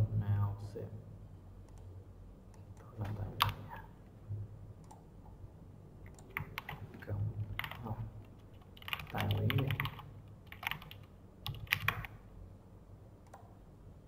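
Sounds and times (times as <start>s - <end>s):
keyboard typing: 6.0s - 12.2s.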